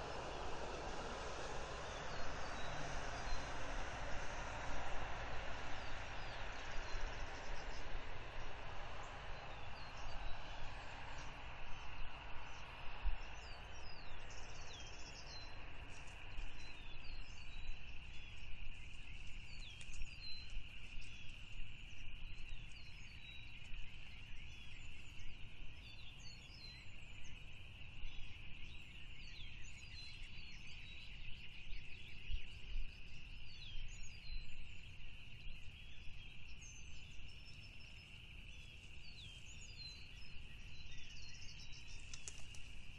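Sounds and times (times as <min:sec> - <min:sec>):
low rumble: 0:00.0 - 0:11.5
broad rushing noise: 0:00.0 - 0:11.6.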